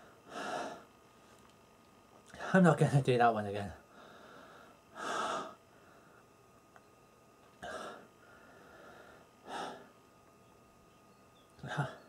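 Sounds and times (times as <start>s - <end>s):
man breathing hard: 0.0s - 0.9s, 3.9s - 6.3s, 7.6s - 10.0s.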